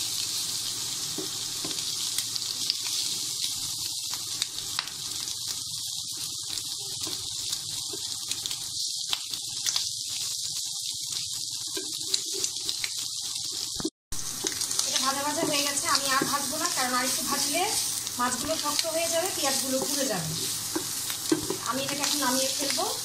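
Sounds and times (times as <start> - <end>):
shrimp sizzling in oil: 0.0 - 23.0
spatula stirring and scraping: 13.6 - 22.2.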